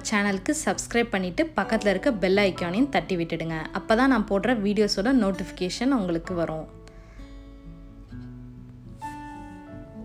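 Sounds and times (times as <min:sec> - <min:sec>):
plucked acoustic guitar melody: 0:05.2 - 0:10.0.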